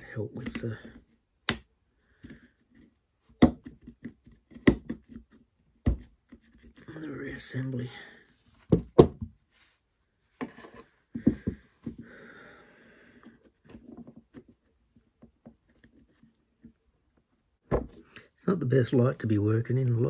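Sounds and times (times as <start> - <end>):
plastic parts knocking on wood: 3.4 - 6.4, 8.7 - 9.4, 11.2 - 12.1, 17.7 - 18.0.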